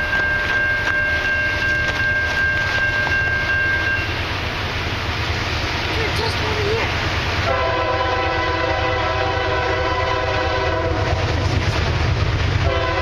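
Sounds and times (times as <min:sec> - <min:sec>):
low rumble of train: 0:00.0 - 0:13.0
locomotive horn chord: 0:07.4 - 0:11.4, 0:12.6 - 0:13.0.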